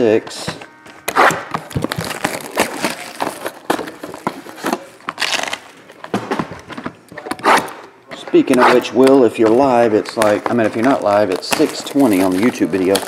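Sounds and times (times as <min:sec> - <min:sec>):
shrink wrap crinkling: 0:01.6 - 0:06.0, 0:08.4 - 0:13.0.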